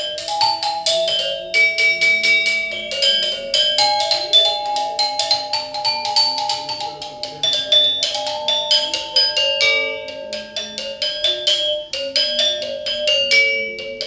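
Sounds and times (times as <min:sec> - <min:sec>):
metallophone melody: 0:00.0 - 0:14.0.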